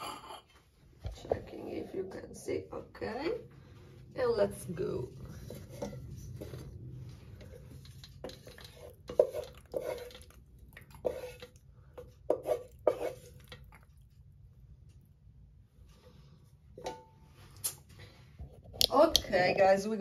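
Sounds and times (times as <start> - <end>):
wooden spoon scraping metal pot: 4.2 - 13.9.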